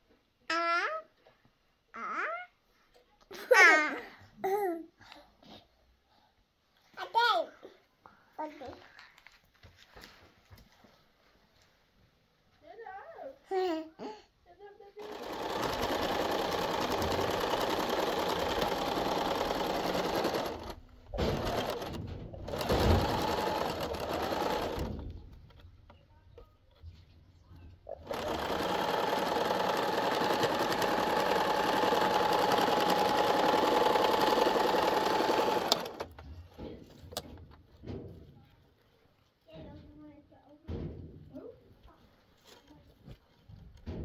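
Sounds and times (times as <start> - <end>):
electric sewing machine stitching: 15.0 - 25.2, 27.9 - 36.2.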